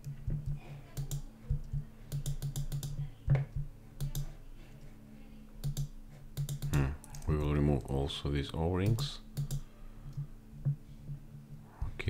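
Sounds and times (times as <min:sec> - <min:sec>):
mouse and keyboard clicks: 0:00.0 - 0:04.4, 0:05.6 - 0:07.9, 0:08.8 - 0:10.2
steady low hum: 0:00.0 - 0:12.0.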